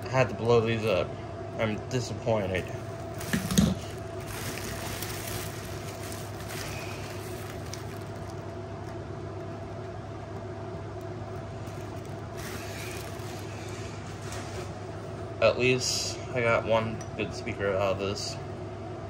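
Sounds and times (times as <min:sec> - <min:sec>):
machine hum: 0:00.0 - 0:19.0
faint rustling: 0:02.8 - 0:10.3, 0:11.2 - 0:15.2.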